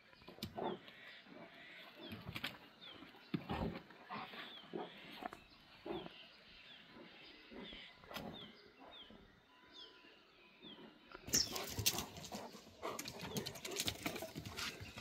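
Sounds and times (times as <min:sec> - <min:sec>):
bird chirping: 0:00.0 - 0:15.0
dogs growling and snarling: 0:03.4 - 0:09.1.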